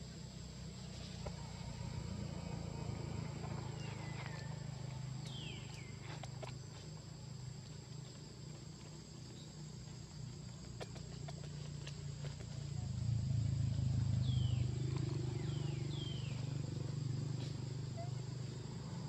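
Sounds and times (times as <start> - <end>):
insect drone: 0.0 - 19.0
low background rumble: 0.0 - 19.0.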